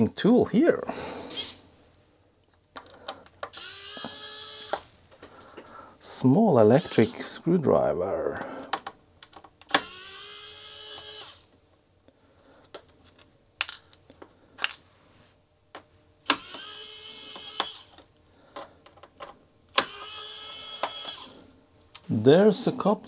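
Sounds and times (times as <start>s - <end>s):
electric screwdriver whirring: 3.5s - 4.9s, 6.8s - 7.2s, 9.7s - 11.6s, 16.2s - 18.0s, 19.7s - 21.4s.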